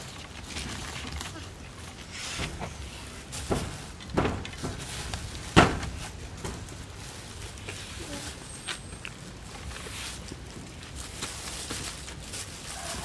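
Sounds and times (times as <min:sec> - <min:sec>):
dull knocks and thumps: 0:02.4 - 0:06.7.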